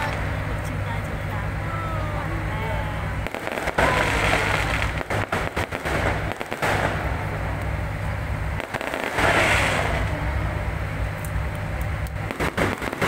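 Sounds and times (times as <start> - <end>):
fireworks bangs and crackles: 3.2 - 7.8, 8.5 - 13.0.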